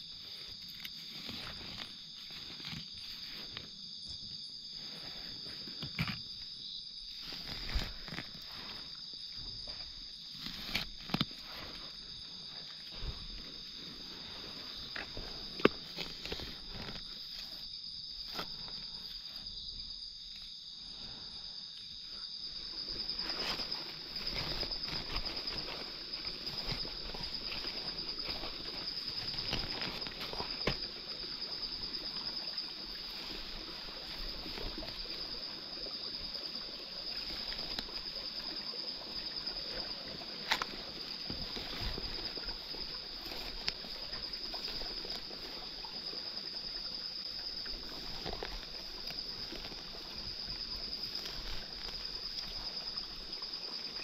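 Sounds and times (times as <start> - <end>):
high-pitched insect drone: 0.0 - 54.0
rustling in leaf litter: 22.6 - 36.1
twigs snapping: 23.2 - 30.9.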